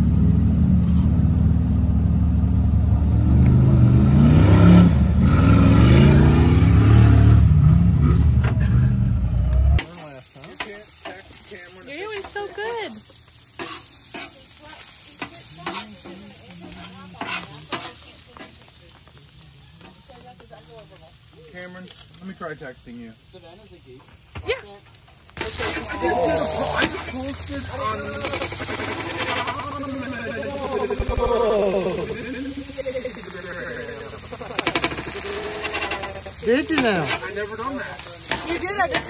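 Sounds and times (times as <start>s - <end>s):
onions sizzling on a griddle: 0.0s - 7.1s, 9.8s - 39.0s
off-road vehicle engine revving: 0.0s - 9.8s, 25.4s - 37.7s
metal spatula scraping a griddle: 13.6s - 18.7s, 25.4s - 31.2s, 32.0s - 39.0s.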